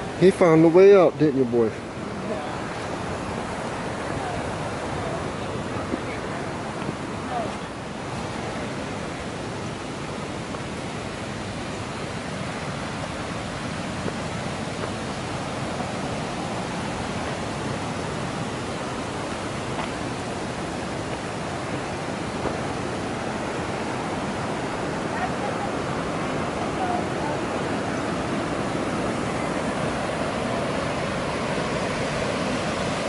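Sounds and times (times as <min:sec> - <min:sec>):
river rapids rushing: 0:00.0 - 0:33.0.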